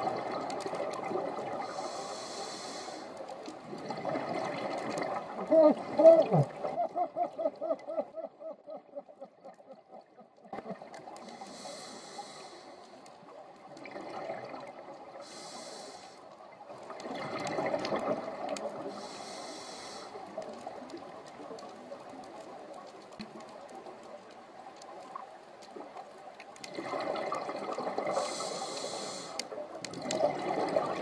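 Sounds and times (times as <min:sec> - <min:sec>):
bubbles gurgling underwater: 0:00.0 - 0:01.7, 0:03.6 - 0:07.9, 0:13.6 - 0:15.1, 0:16.7 - 0:18.8, 0:26.6 - 0:28.5, 0:29.8 - 0:31.0
hissing regulator breaths: 0:01.6 - 0:03.3, 0:11.2 - 0:13.0, 0:15.2 - 0:16.2, 0:18.9 - 0:20.3, 0:28.1 - 0:29.5.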